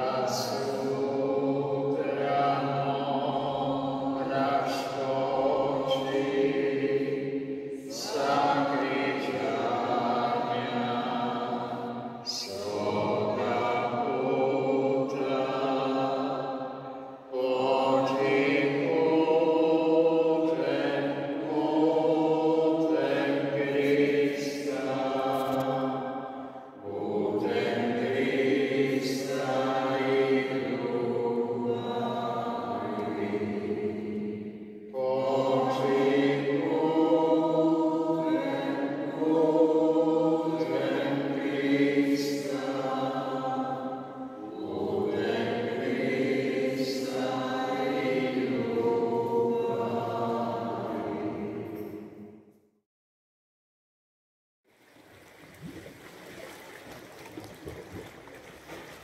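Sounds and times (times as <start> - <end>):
sacred choral singing: 0.0 - 52.5.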